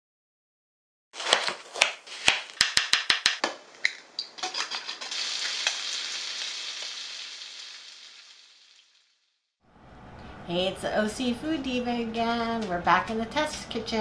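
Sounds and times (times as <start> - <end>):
bacon sizzling in a frying pan: 4.8 - 9.1.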